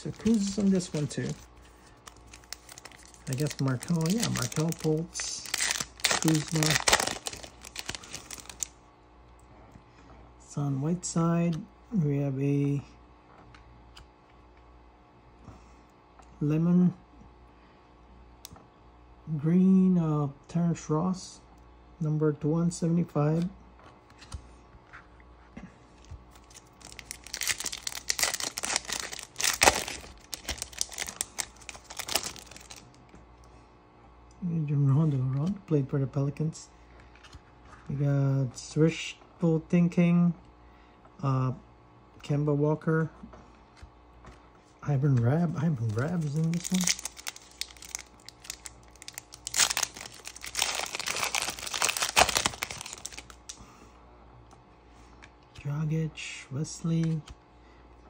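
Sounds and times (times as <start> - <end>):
foil pack tearing and crinkling: 0.0 - 8.7, 26.3 - 32.9, 45.7 - 53.6.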